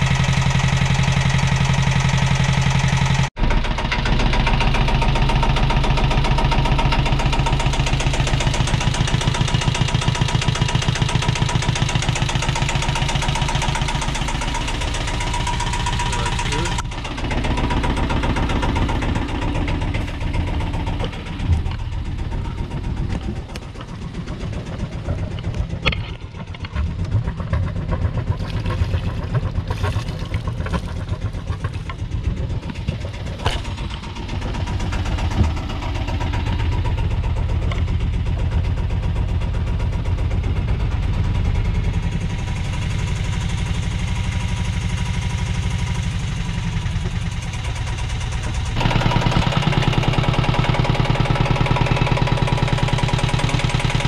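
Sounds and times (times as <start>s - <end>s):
diesel engine idling: 0.0s - 54.0s
water splashing from outlet: 28.2s - 31.9s.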